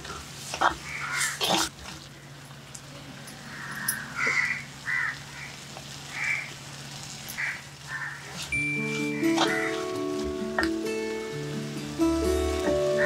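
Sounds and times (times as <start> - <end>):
crow cawing: 0.8 - 1.4, 3.5 - 6.5, 7.4 - 8.3, 9.4 - 9.7.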